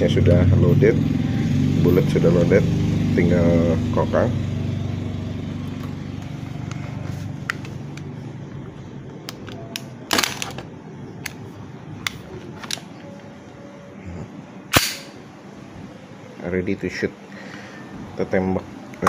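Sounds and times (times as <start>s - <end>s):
pistol handling clicks: 14.7s - 15.2s
pistol slide metallic clacks: 14.7s - 15.2s.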